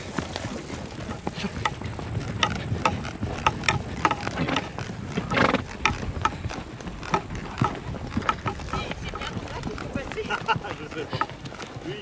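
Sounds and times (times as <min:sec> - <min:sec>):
wind on microphone: 0:00.0 - 0:11.0
horse stride knocks and squeaks: 0:02.4 - 0:06.0, 0:07.0 - 0:10.0.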